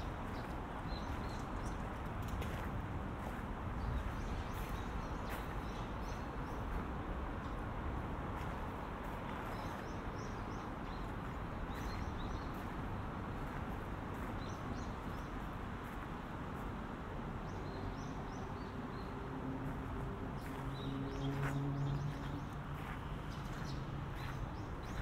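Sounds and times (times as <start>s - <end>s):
city background hum: 0.0s - 25.0s
small birds chirping: 20.4s - 25.0s.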